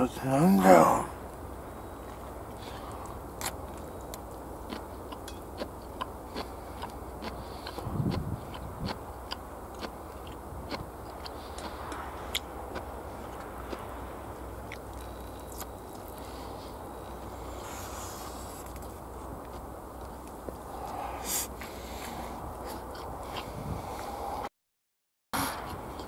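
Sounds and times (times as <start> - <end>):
wet chewing clicks and smacks: 3.0 - 13.9, 14.7 - 16.2.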